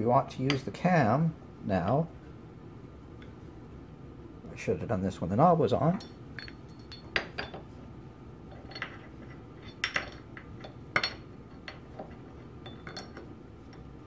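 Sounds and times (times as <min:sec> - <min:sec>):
metal parts clinking and clicking: 0:05.9 - 0:07.6, 0:08.5 - 0:13.9.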